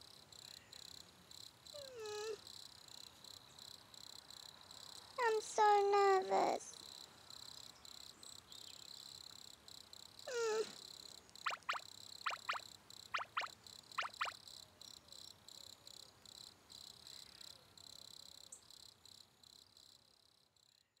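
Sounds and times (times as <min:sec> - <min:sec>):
crickets chirping: 0:00.0 - 0:21.0
short falling whimper: 0:10.3 - 0:10.8
sharp frog-like chirping calls: 0:11.4 - 0:14.6.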